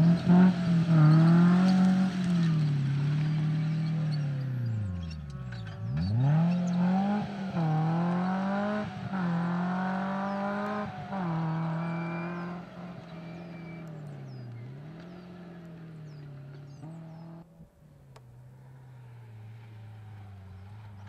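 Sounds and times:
car engine revving hard: 0.0 - 4.7, 5.9 - 15.8.

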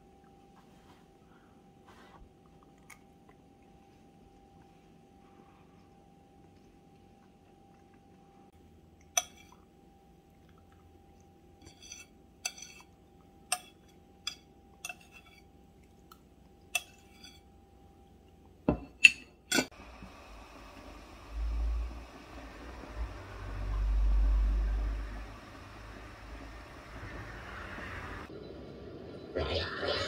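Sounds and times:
glassware clinking: 9.2 - 9.6, 18.7 - 19.7.

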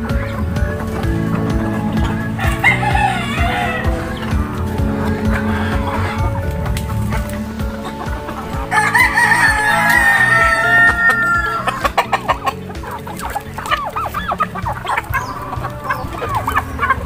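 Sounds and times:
chickens clucking: 0.0 - 17.0
chickens pecking taps: 0.0 - 17.0
rooster crowing: 2.0 - 6.5, 7.2 - 12.2.

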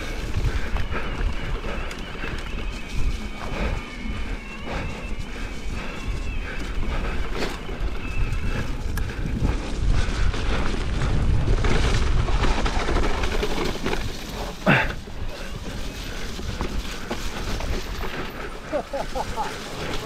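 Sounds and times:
bike rattling: 0.0 - 20.0
wind buffeting microphone: 0.0 - 20.0.

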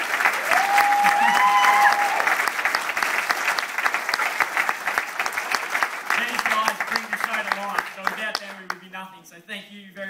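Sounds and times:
audience applauding: 0.0 - 8.9
person cheering: 0.4 - 2.4.

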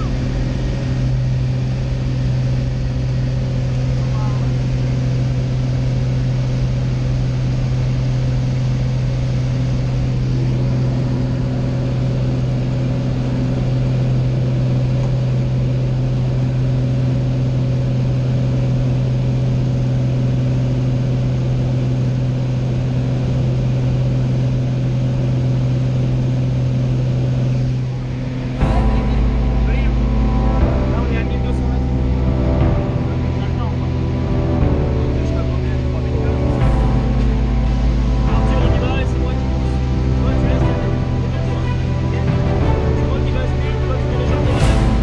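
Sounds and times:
propeller plane engine droning: 0.0 - 45.0.

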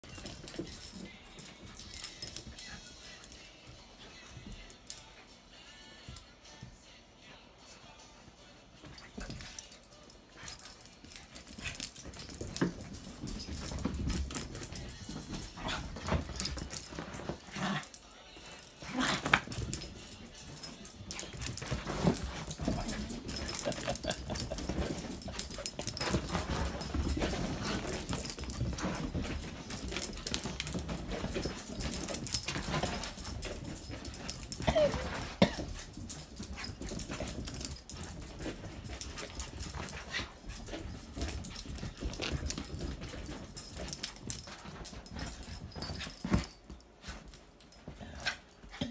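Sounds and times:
puppies scuffling: 0.0 - 5.0, 8.9 - 48.9
puppy whining: 34.5 - 35.5.

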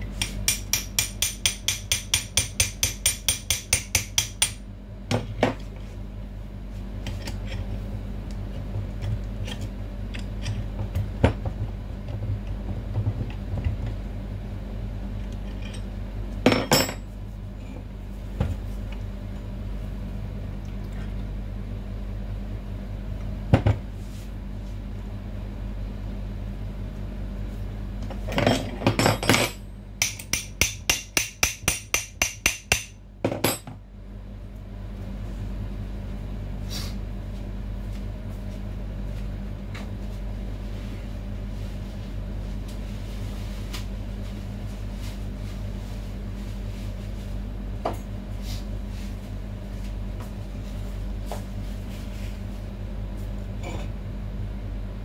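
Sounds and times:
steady low hum: 0.0 - 55.0
hammer tapping on steel housing: 0.2 - 4.6, 29.1 - 33.7.

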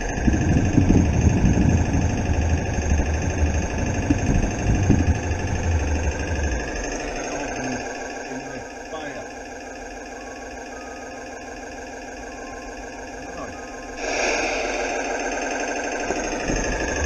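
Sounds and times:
train rolling rumble: 0.0 - 8.6, 12.6 - 17.0
model train mechanical hum: 0.0 - 17.0.

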